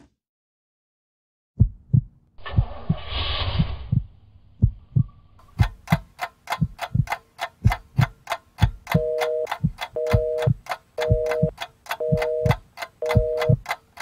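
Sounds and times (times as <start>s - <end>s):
heartbeat thumping: 1.6s - 13.6s
clock ticking: 4.6s - 14.0s.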